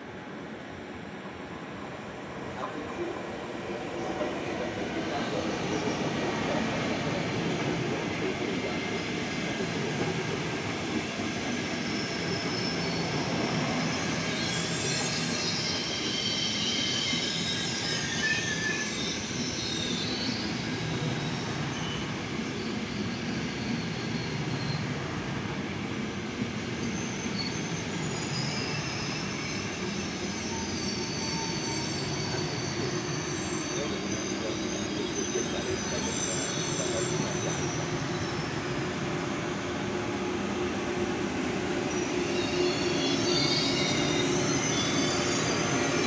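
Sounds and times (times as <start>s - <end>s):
high-pitched wheel squeal: 11.6s - 25.0s, 26.6s - 39.1s, 41.7s - 46.0s.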